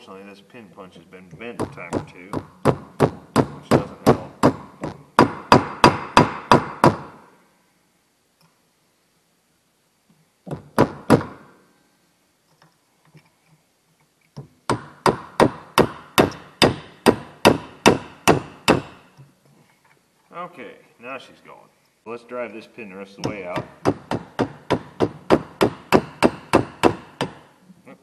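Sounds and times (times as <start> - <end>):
hammer striking metal punch: 14.7 - 19.0, 23.2 - 27.4.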